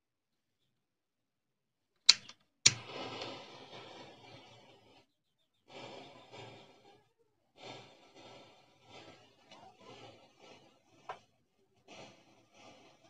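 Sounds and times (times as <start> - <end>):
torch lighter clicks: 2.1 - 3.4
hissing flame: 2.1 - 13.0
matchsticks crackling: 2.1 - 13.0.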